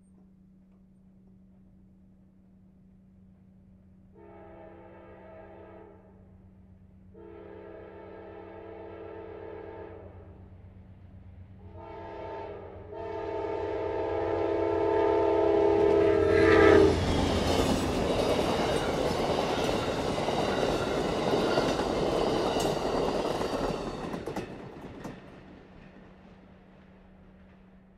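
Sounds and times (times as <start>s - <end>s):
locomotive horn blasts: 4.1s - 6.2s, 7.1s - 10.2s, 11.7s - 17.0s
train wheels clattering on rails: 15.8s - 27.9s.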